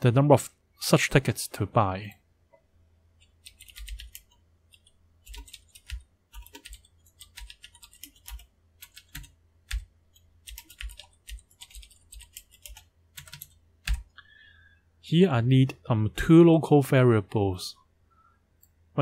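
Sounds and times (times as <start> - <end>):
computer keyboard typing: 3.2 - 14.1.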